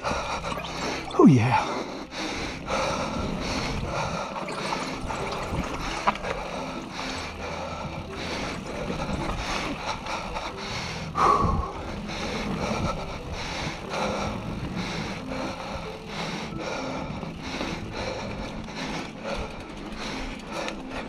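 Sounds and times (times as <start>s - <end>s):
heavy breathing: 0.0s - 21.0s
bike rattling: 1.9s - 21.0s
bike tyres rolling on dirt: 2.1s - 21.0s.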